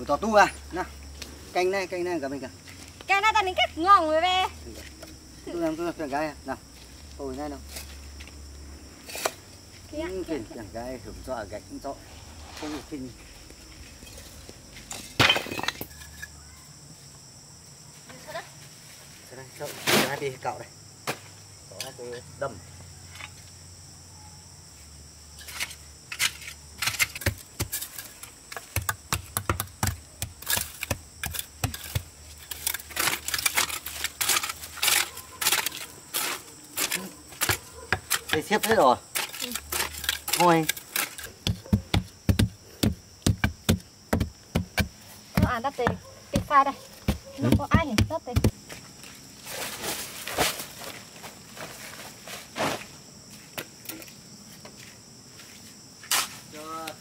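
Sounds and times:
bricks and trowel clinking: 0:14.9 - 0:16.4.

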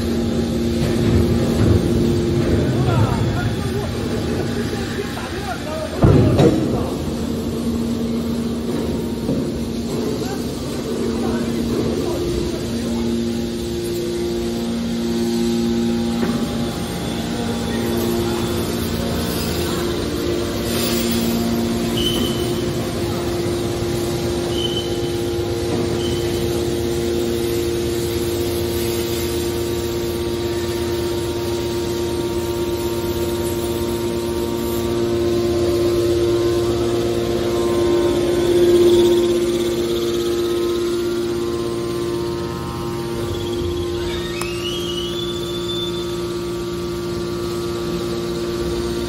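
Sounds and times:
electric motor and hydraulic pump humming: 0:00.0 - 0:49.0.

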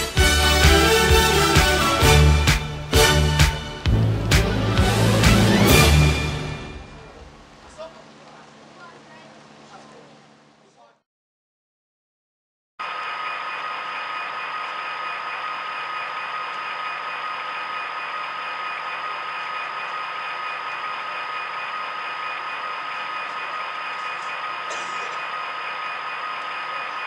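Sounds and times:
high whine: 0:12.8 - 0:27.0
model locomotive diesel idling: 0:12.8 - 0:27.0.

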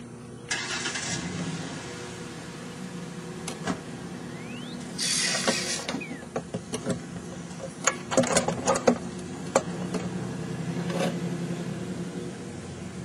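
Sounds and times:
small gas engine idling: 0:00.0 - 0:13.0
sharp clicks and rattles: 0:06.3 - 0:10.1.

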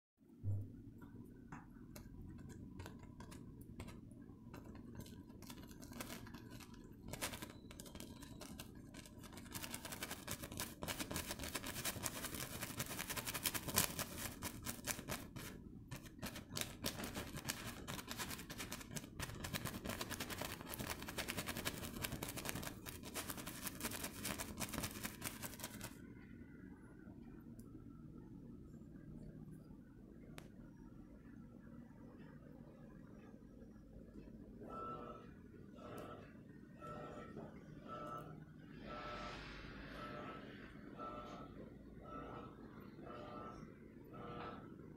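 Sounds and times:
brush dabbing paint on canvas: 0:01.6 - 0:26.0.

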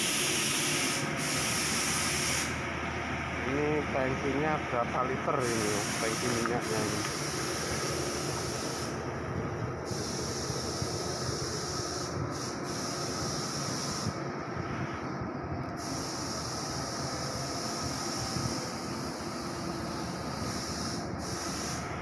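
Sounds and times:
constant hiss: 0:00.0 - 0:15.0
low mechanical rumble: 0:00.0 - 0:22.0.

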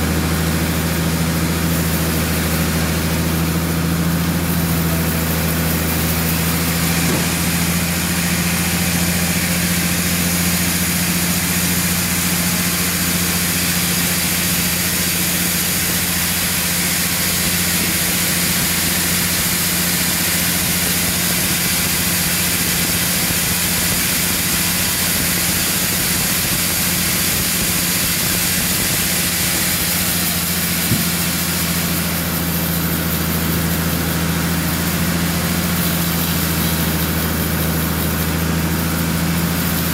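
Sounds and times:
band saw machine hum: 0:00.0 - 0:39.9
saw blade hissing through log: 0:00.2 - 0:39.9.

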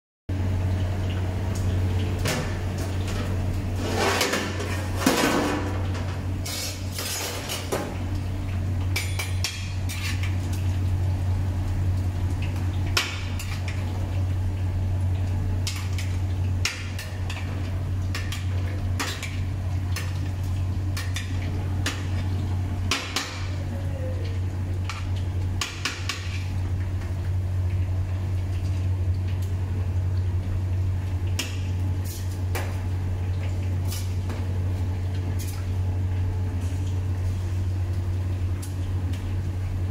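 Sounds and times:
metal skimmer scraping cooking pot: 0:03.0 - 0:07.7.

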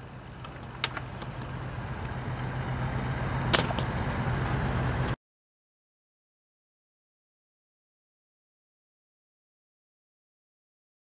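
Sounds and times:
low hum: 0:00.0 - 0:05.2
outdoor background noise: 0:00.0 - 0:05.2.

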